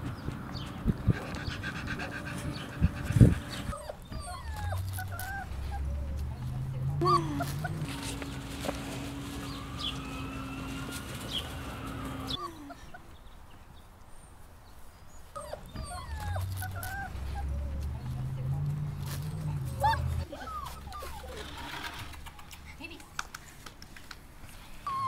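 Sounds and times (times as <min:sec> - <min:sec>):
puppies whimpering and yipping: 0:01.3 - 0:13.1, 0:15.3 - 0:22.3.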